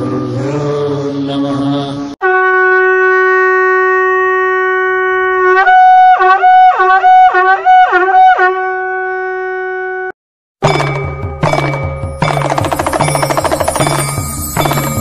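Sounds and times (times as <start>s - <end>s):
conch shell blown: 2.2s - 10.2s.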